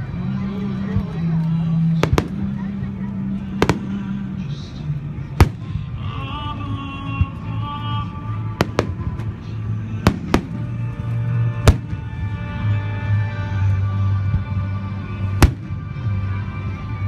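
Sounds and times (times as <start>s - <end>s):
music playing: 0.0s - 17.0s
firework bangs: 2.0s - 2.6s, 3.6s - 4.2s, 5.4s - 6.0s, 8.6s - 9.4s, 10.0s - 10.8s, 11.7s - 12.3s.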